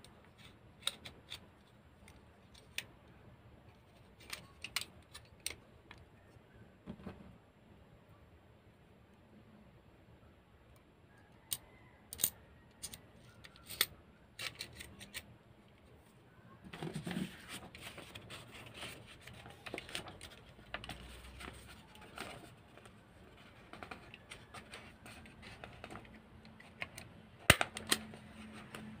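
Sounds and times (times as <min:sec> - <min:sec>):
paper rustling: 0:16.7 - 0:26.2.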